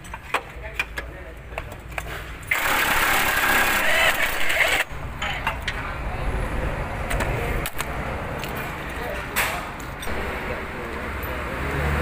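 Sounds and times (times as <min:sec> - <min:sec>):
impact wrench running: 0:02.5 - 0:04.9.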